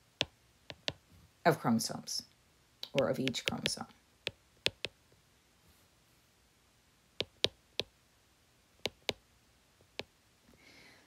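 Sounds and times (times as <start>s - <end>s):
sharp clicks: 2.8s - 3.9s, 4.7s - 5.0s.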